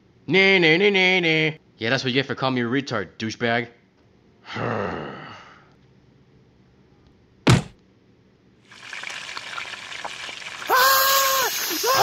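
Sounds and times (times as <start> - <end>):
sharp thunk: 7.5 - 7.8
fryer oil sizzling: 8.6 - 12.0.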